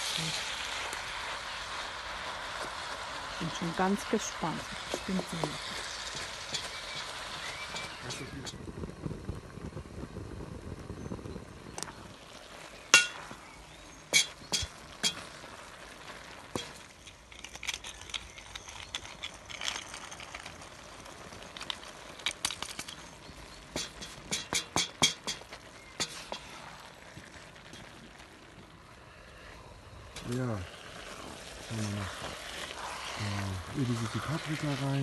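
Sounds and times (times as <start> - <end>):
faint sizzle: 0.0 - 35.0
wooden stick scraping a pot: 4.5 - 8.6, 22.5 - 26.8, 31.1 - 35.0
stick clinking against iron pot: 5.4 - 7.1, 7.7 - 8.6, 13.0 - 13.4, 14.1 - 15.3, 16.5 - 16.9, 23.7 - 26.6.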